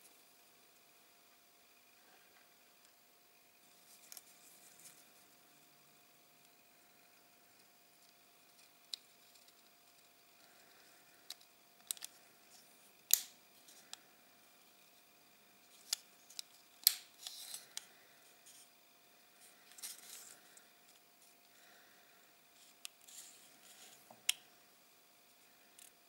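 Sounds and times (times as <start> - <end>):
plastic parts clicking: 11.3 - 12.2
plastic parts scraping: 17.2 - 17.8, 22.6 - 24.0.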